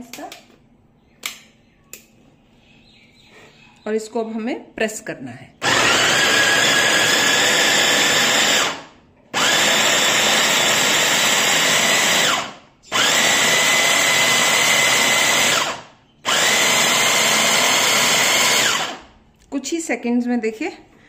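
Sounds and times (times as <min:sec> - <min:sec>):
electric chopper motor whine: 0:05.6 - 0:08.8, 0:09.4 - 0:19.0.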